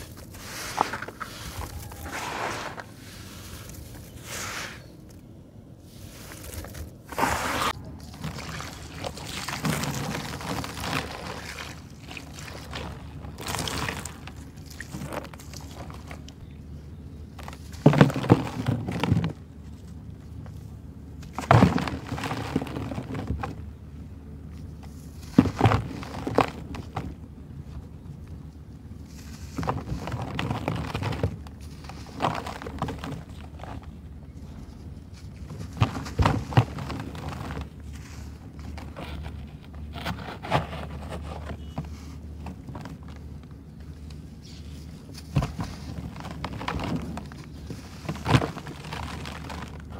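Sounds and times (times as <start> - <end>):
gritty crumbling by hand: 0.0 - 4.3, 6.1 - 16.5, 21.2 - 23.7, 24.7 - 27.2, 29.0 - 49.9.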